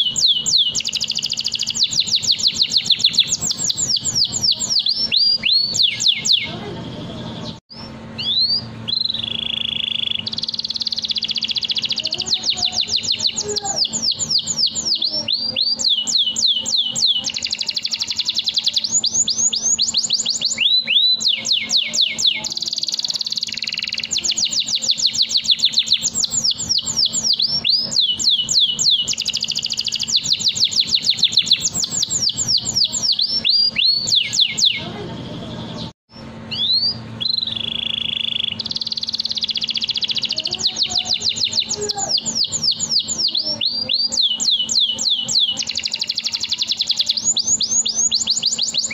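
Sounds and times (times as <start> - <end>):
canary singing: 0.0 - 48.9.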